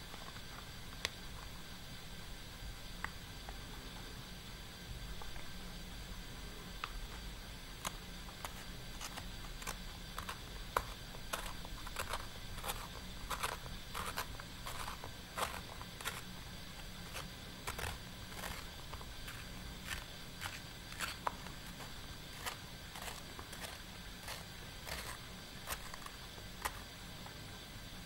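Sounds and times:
pencil sharpener scraping wood: 0:07.8 - 0:26.8.

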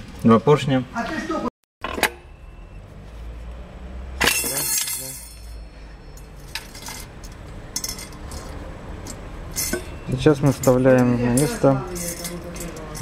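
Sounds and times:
metal parts clinking and clattering: 0:04.2 - 0:13.0.

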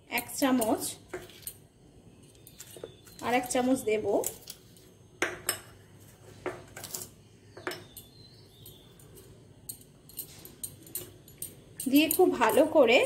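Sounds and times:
spoon clinking against glass bowl: 0:06.8 - 0:13.0.

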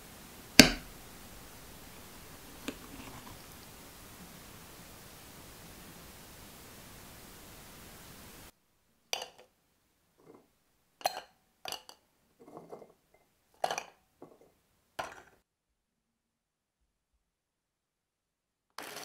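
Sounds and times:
steady hiss: 0:00.0 - 0:15.4
cookies clattering into plastic bowl: 0:02.3 - 0:03.6, 0:18.8 - 0:19.0.

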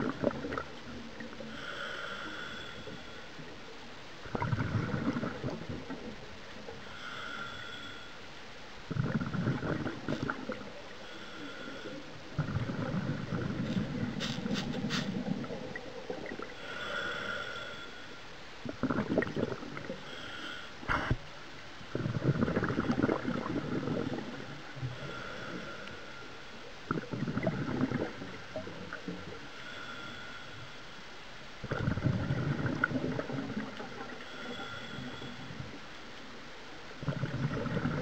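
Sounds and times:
exhaled bubbles rumbling underwater: 0:00.0 - 0:07.3, 0:08.8 - 0:17.8, 0:18.5 - 0:30.3, 0:31.6 - 0:38.0
regulator inhale hiss: 0:01.4 - 0:03.5, 0:06.6 - 0:08.3, 0:10.1 - 0:12.3, 0:13.6 - 0:15.3, 0:16.5 - 0:18.3, 0:19.9 - 0:21.2, 0:24.7 - 0:26.7, 0:28.4 - 0:31.1, 0:34.1 - 0:36.1.

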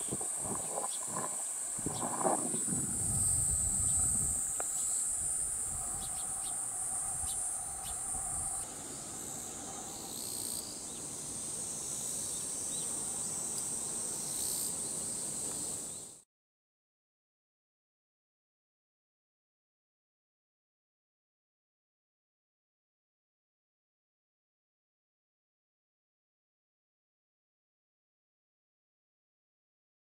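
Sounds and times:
cicadas droning: 0:00.0 - 0:16.3.

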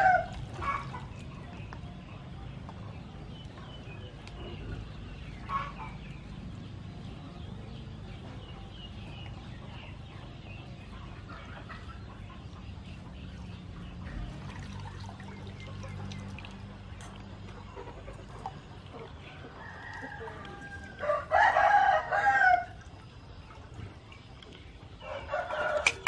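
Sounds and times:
hands squishing wet coconut: 0:00.0 - 0:01.9
chickens clucking: 0:00.0 - 0:26.0.

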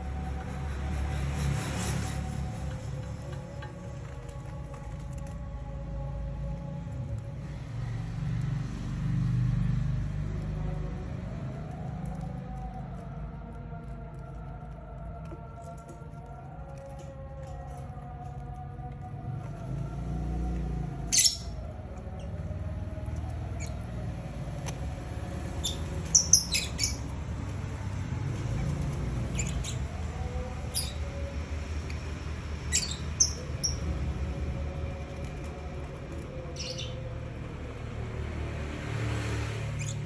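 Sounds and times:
lovebirds chirping: 0:21.1 - 0:21.6, 0:25.5 - 0:27.1, 0:29.3 - 0:31.1, 0:32.7 - 0:33.8, 0:36.6 - 0:37.0.

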